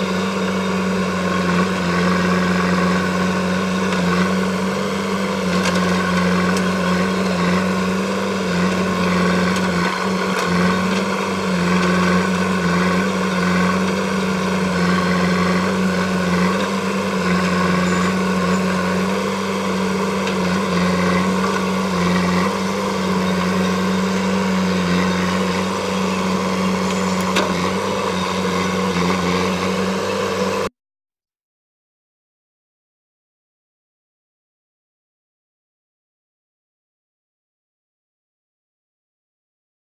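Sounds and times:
diesel engine running: 0:00.0 - 0:30.7.

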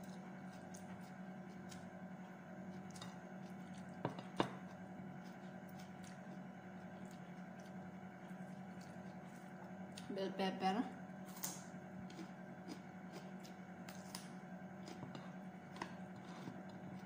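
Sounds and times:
chewing: 0:00.0 - 0:10.1, 0:12.0 - 0:14.2
steady low hum: 0:00.0 - 0:17.0
fingers working rice on a plate: 0:14.8 - 0:17.0.

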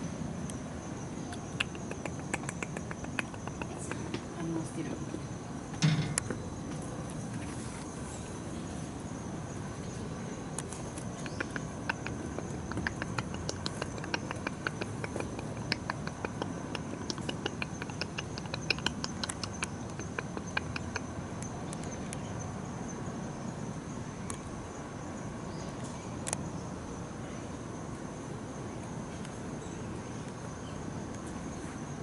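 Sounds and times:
quick sharp clicks: 0:01.6 - 0:04.0, 0:10.6 - 0:21.0.

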